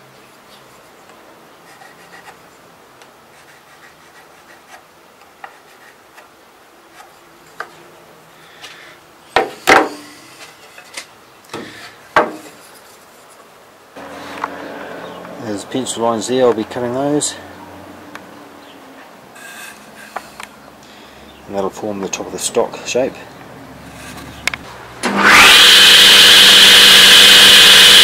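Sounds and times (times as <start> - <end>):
pencil scratching on wood: 1.6 - 2.4, 3.3 - 4.8, 5.4 - 6.2
wooden knocks and clatter: 11.6 - 12.6.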